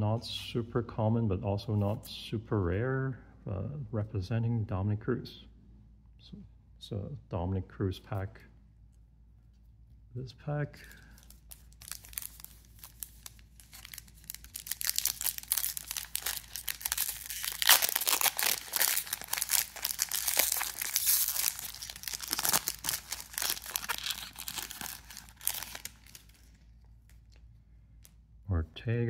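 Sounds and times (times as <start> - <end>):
foil wrapper crinkling and tearing: 10.8 - 27.4.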